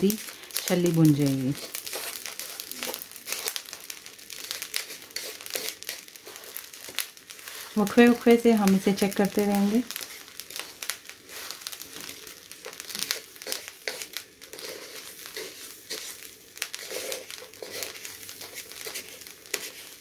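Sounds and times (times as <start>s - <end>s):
spatula scraping salt in wok: 0.0s - 20.0s.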